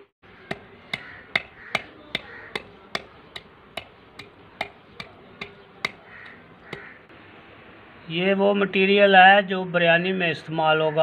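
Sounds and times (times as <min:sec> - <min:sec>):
wooden pestle pounding in clay bowl: 0:00.3 - 0:07.0.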